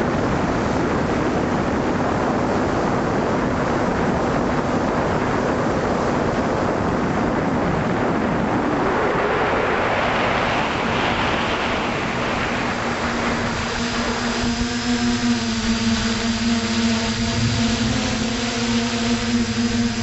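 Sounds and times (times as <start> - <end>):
wind rushing over microphone: 0.0 - 20.0
drone motor hum: 12.1 - 20.0.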